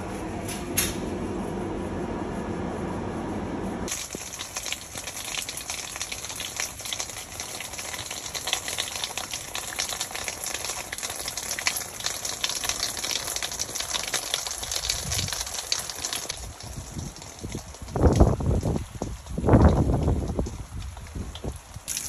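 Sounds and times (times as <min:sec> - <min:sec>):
steady rain falling: 0:03.9 - 0:22.0.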